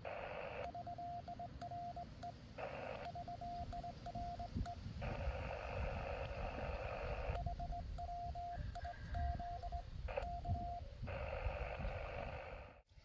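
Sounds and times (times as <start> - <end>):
morse code beeps: 0.0 - 12.5
radio band hiss: 0.0 - 12.8
wind rumble on microphone: 3.3 - 13.0.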